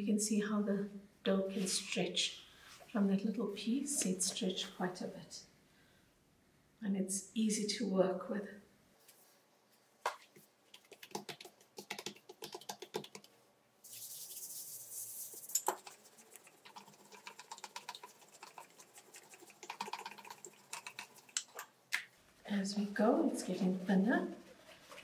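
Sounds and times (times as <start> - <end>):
hands smoothing dough: 10.2 - 19.7
rapid light clicks and taps: 10.7 - 13.4.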